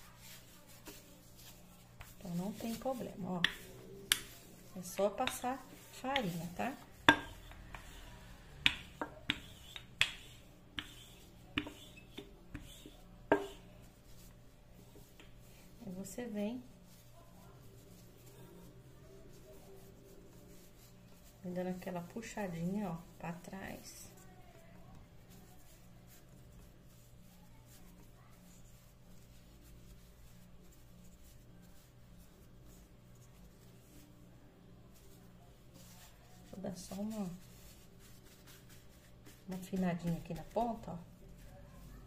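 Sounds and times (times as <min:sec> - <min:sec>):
soft brushing and rustling of dough: 0:00.0 - 0:42.0
rolling pin tapping countertop: 0:00.7 - 0:08.0, 0:08.6 - 0:13.6.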